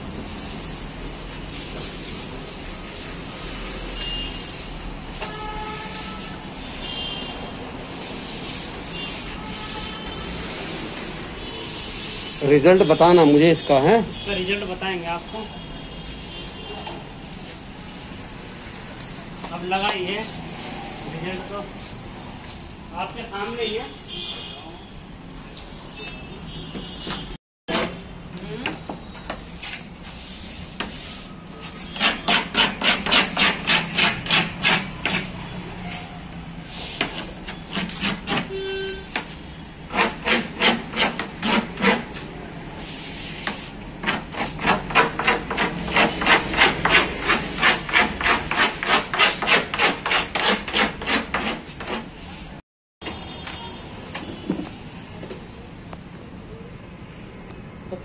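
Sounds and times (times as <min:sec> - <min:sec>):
scraping on wood: 0:31.6 - 0:36.1, 0:37.0 - 0:38.5, 0:39.9 - 0:42.3, 0:43.4 - 0:52.1.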